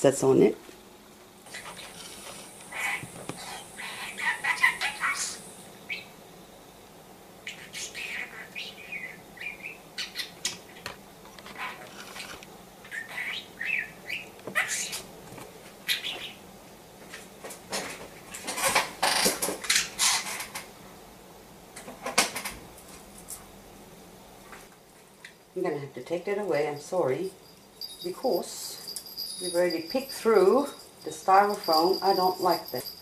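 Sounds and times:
budgerigar chirping: 2.7 - 6.1, 7.5 - 10.8, 12.9 - 14.9, 15.9 - 16.4.

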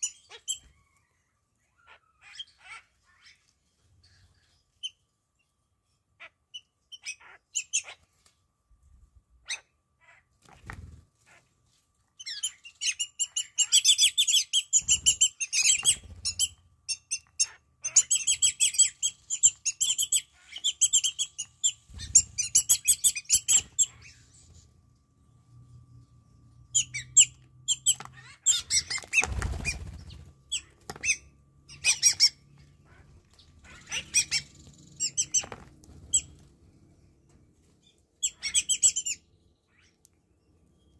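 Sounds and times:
starlings chattering: 26.7 - 36.4
bird wing flaps: 29.1 - 30.3.

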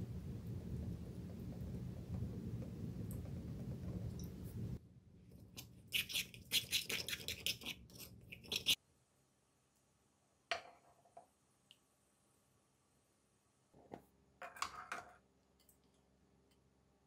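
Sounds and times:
low rumbling noise: 0.0 - 5.2
spoon scraping in a mortar: 5.6 - 8.8.

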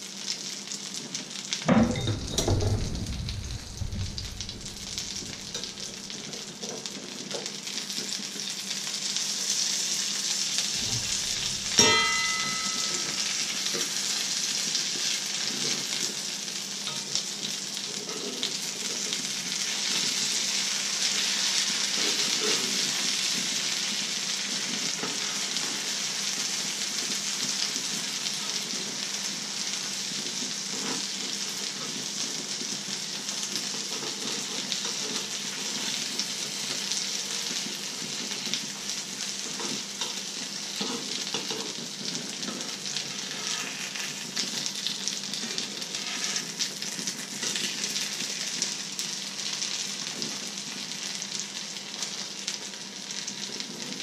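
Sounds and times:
food sizzling in frying oil: 0.0 - 54.0
spatula scraping and tapping pan: 10.8 - 14.0.

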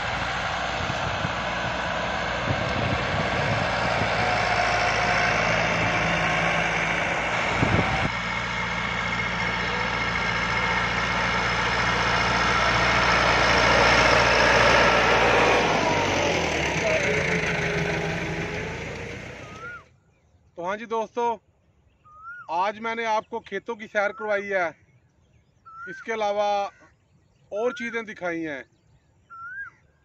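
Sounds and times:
engine running steadily: 0.0 - 19.8.

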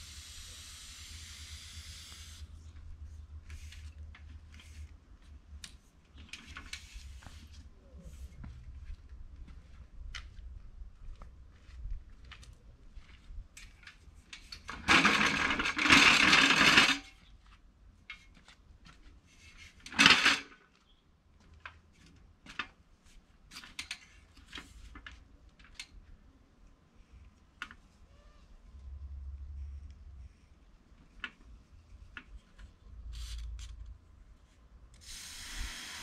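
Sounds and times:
aerosol spray hissing: 35.0 - 36.0.

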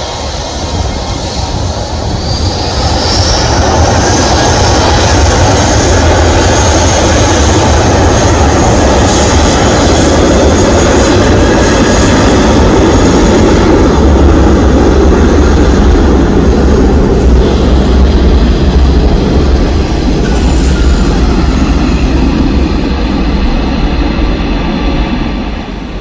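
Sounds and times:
jet engines rumbling with hiss: 0.0 - 26.0.

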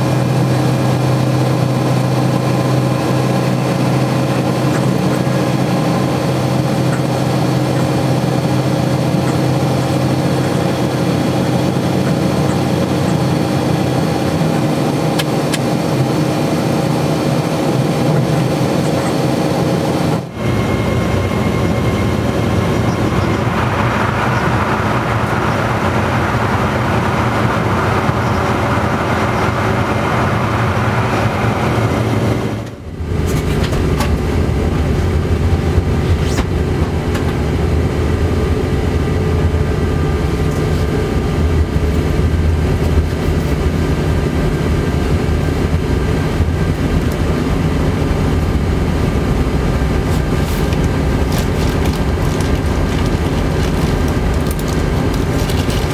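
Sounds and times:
train cab running noise: 0.0 - 16.1, 17.7 - 55.9.

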